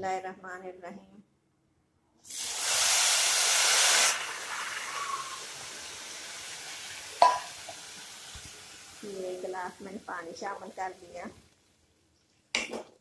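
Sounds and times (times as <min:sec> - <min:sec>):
steam hissing in hot pan: 0:02.3 - 0:09.8
steady sizzle: 0:02.3 - 0:11.8.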